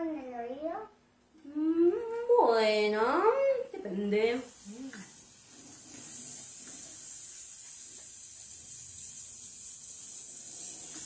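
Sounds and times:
crepe sizzling in frying pan: 4.3s - 11.0s.

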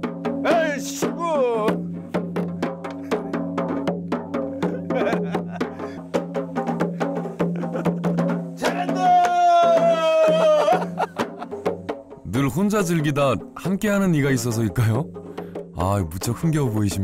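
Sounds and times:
hourglass drum beaten with stick: 7.8s - 13.8s.

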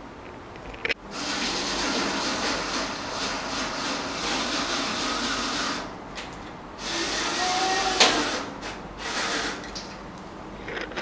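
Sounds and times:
electric screwdriver running: 6.8s - 9.6s.

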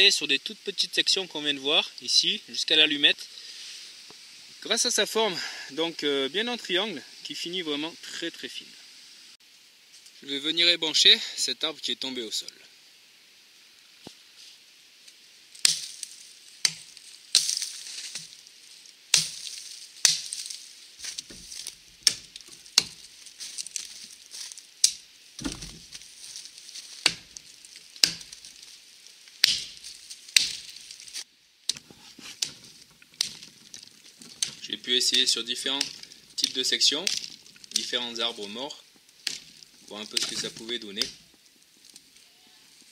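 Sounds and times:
twigs and branches rustling: 8.9s - 10.3s, 13.6s - 42.9s
axe chopping branches: 15.6s - 18.4s, 19.1s - 24.0s, 24.8s - 26.1s, 26.8s - 28.7s, 29.4s - 38.6s, 39.2s - 41.3s.

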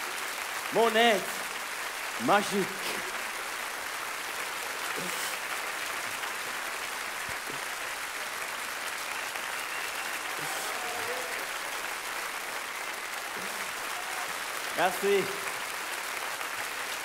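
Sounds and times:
audience applauding: 0.0s - 17.0s.

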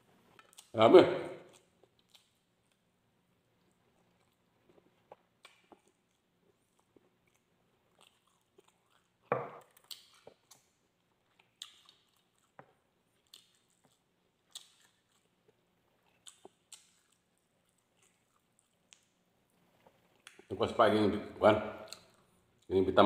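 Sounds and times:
man chewing and biting food: 1.4s - 2.9s, 3.6s - 20.5s.

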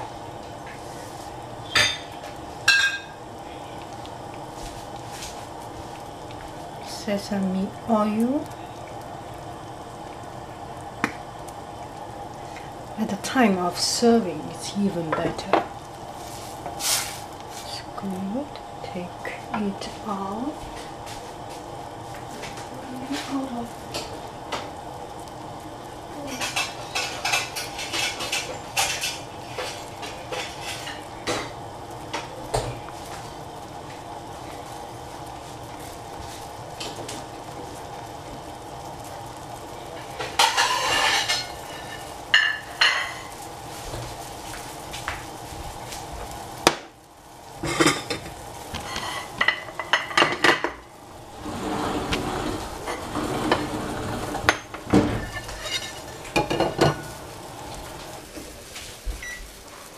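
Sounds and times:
steady hum: 0.0s - 59.8s
metal utensils clinking on pot: 54.5s - 57.1s.

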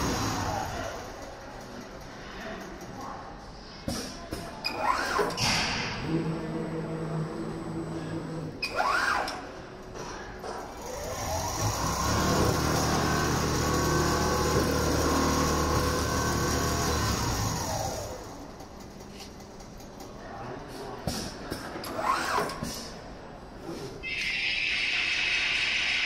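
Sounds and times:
sewing machine motor running: 0.0s - 1.8s, 10.6s - 19.3s.

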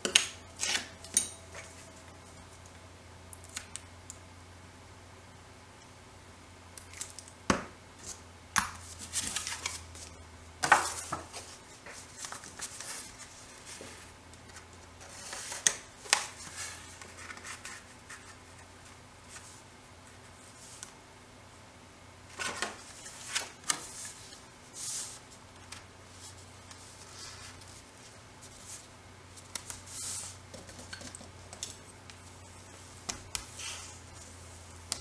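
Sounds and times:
faint low hum: 0.0s - 35.0s
paper and tools rustling and tapping: 8.0s - 19.6s, 22.3s - 35.0s.

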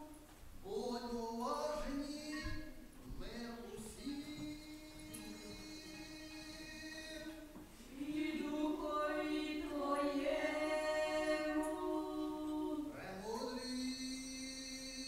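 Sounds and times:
choir chanting a cappella: 3.6s - 15.0s.

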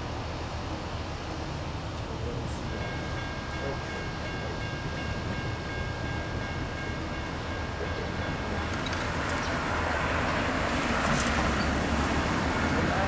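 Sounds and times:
distant train rumble: 0.0s - 13.0s.

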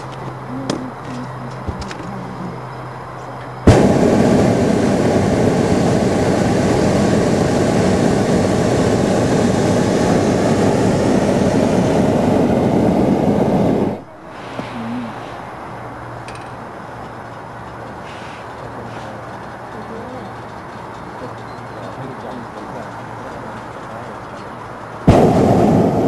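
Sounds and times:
propane burner roaring: 0.0s - 26.0s.

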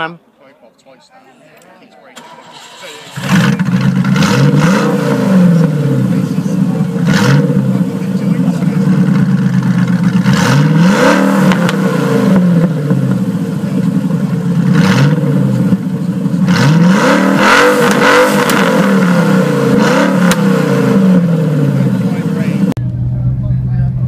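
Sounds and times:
car engine idling and revving: 2.2s - 24.0s.

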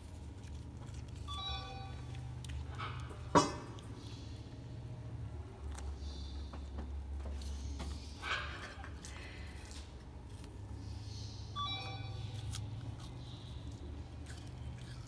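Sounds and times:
animal chewing apple: 0.0s - 15.0s
high squeak: 1.2s - 2.2s.

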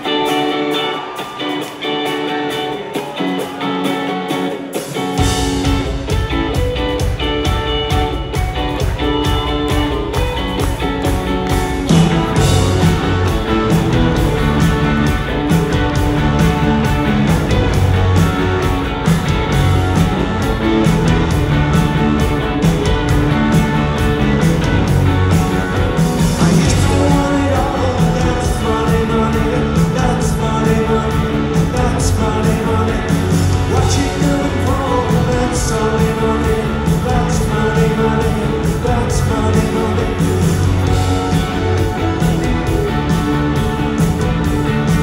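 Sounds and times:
bass guitar: 0.0s - 45.0s
electric guitar: 0.0s - 45.0s
driving drum beat: 4.3s - 45.0s
lead vocal singing: 25.8s - 45.0s.

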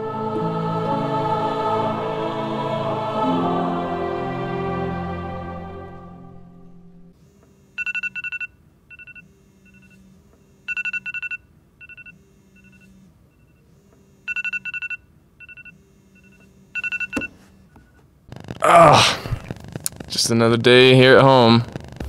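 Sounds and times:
phone alarm beeping: 7.8s - 17.4s.

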